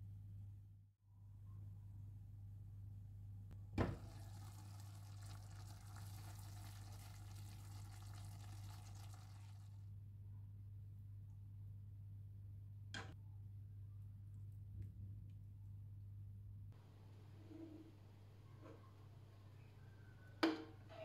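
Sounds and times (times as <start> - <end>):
stew sizzling in frying pan: 3.9 - 9.7.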